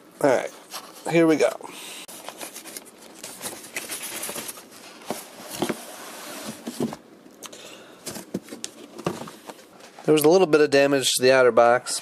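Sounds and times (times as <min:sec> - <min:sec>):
cardboard box rustling and scraping: 0:02.1 - 0:07.0.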